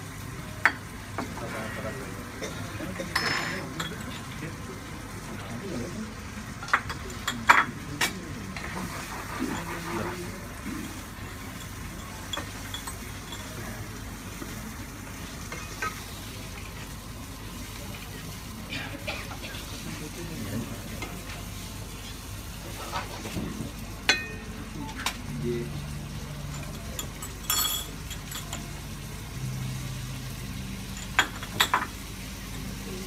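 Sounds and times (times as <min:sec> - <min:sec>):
food sizzling in a frying pan: 0:00.0 - 0:33.0
utensils clinking: 0:03.0 - 0:04.4, 0:11.4 - 0:13.7, 0:24.1 - 0:25.2, 0:26.4 - 0:28.8.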